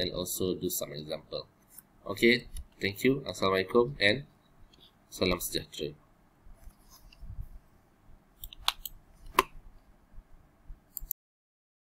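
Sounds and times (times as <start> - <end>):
computer mouse clicks: 8.4 - 9.5, 10.9 - 11.2.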